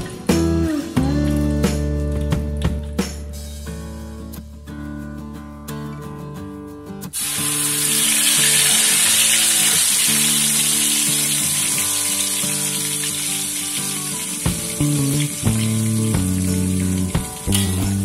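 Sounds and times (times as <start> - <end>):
chili paste sizzling in hot oil: 7.2 - 18.0.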